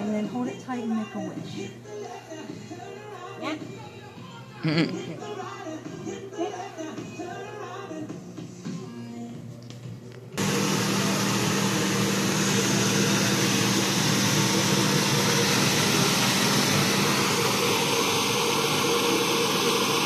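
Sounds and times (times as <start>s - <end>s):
air blower rushing: 10.4s - 20.0s.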